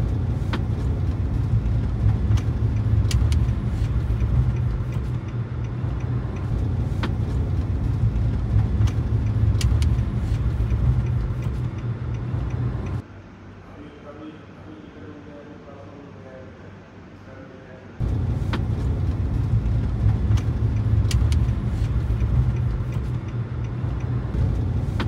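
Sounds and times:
road and wind noise in car: 0:00.0 - 0:13.6, 0:17.9 - 0:25.0
light clicks: 0:02.3 - 0:07.2, 0:08.8 - 0:13.0, 0:20.2 - 0:24.1.

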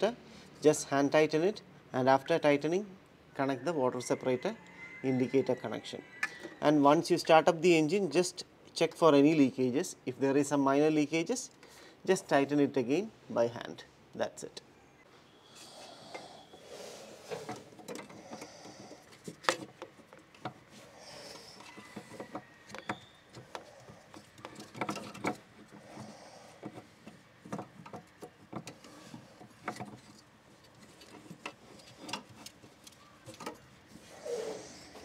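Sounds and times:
tools clicking and knocking: 0:17.3 - 0:33.8.

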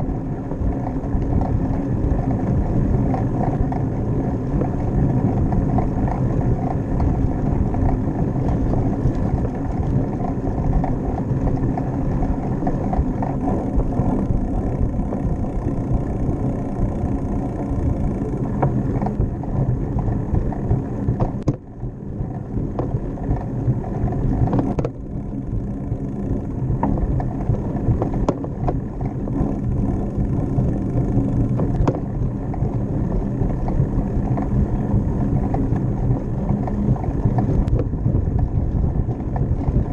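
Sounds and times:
bicycle road noise on concrete: 0:00.0 - 0:39.9
wind buffeting microphone: 0:00.0 - 0:39.9
light clicks and knocks: 0:31.0 - 0:32.8.

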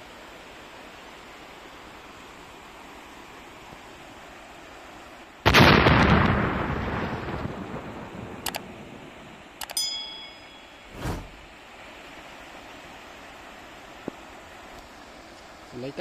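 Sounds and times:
stream rushing: 0:00.0 - 0:16.0
short bell chime: 0:09.8 - 0:11.0
whoosh sound effect: 0:10.9 - 0:11.5.

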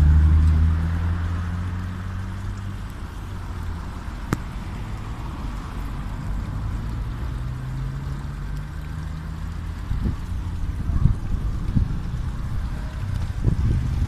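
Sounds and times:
road traffic rumble: 0:00.0 - 0:14.0
vehicle engine humming: 0:00.0 - 0:14.0.

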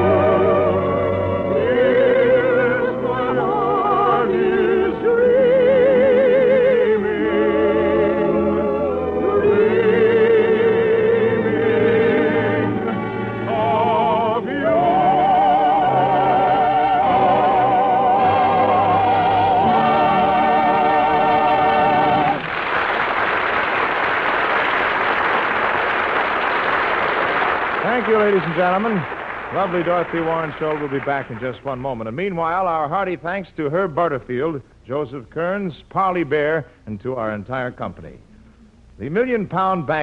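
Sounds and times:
operatic singing: 0:00.0 - 0:22.4
orchestral accompaniment: 0:00.0 - 0:22.4.

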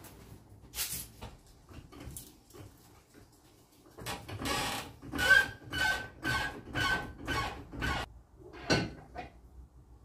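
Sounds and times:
floor jack pumping squeaks: 0:04.1 - 0:08.1.

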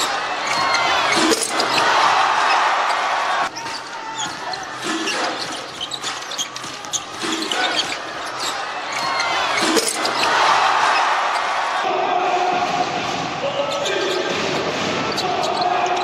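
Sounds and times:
sneakers squeaking: 0:00.0 - 0:11.8, 0:13.6 - 0:16.0
crowd noise: 0:00.0 - 0:16.0.

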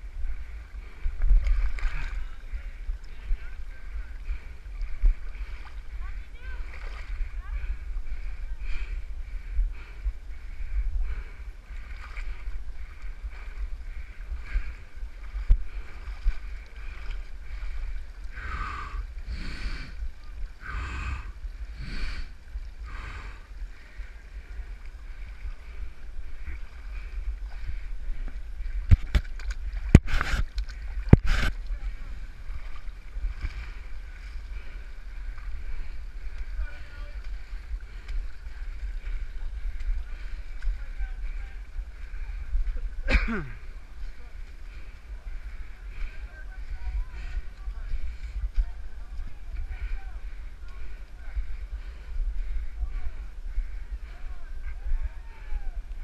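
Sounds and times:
camera handling rumble: 0:28.9 - 0:31.7.

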